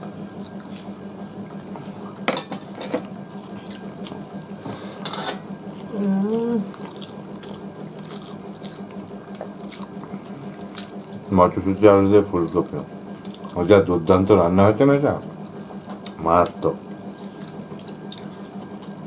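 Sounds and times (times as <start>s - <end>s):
hands mixing food on steel plates: 0.3s - 19.0s
chewing: 0.4s - 2.1s, 3.2s - 4.6s, 5.4s - 13.7s, 15.2s - 19.0s
person humming mm: 5.9s - 6.7s.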